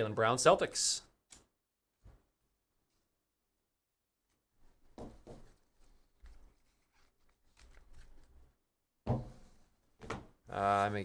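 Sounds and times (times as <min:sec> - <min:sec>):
knock on table: 0:09.1 - 0:09.4.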